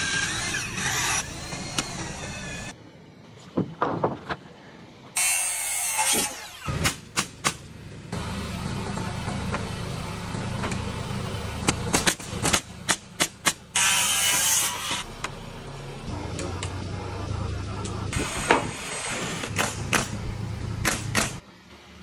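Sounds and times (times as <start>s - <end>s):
nail gun shots: 19.5s - 20.2s, 20.8s - 21.4s.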